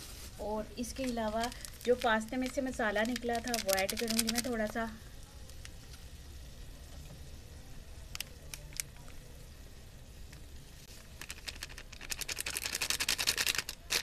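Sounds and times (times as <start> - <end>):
plastic sachet crinkling: 0.0 - 4.8, 8.1 - 9.2, 11.0 - 14.0.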